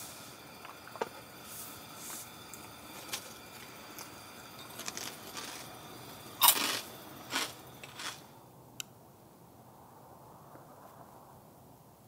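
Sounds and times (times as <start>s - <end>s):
crunching fried food: 4.8s - 8.3s.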